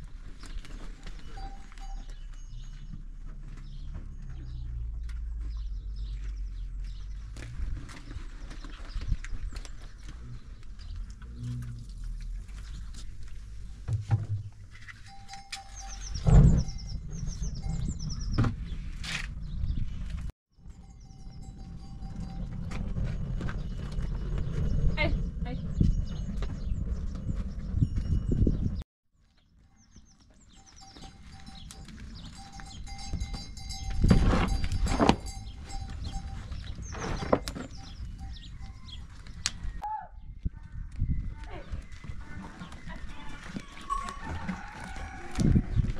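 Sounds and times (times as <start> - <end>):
fire burning low rumble: 21.3 - 28.8.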